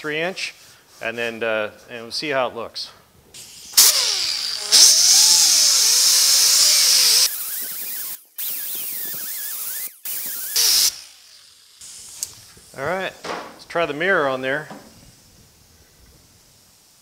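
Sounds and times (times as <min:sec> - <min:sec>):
die grinder whining on metal: 0:03.8 - 0:11.8.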